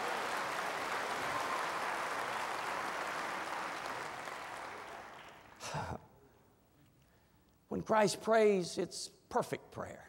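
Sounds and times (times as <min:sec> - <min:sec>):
congregation applauding: 0:00.0 - 0:05.7.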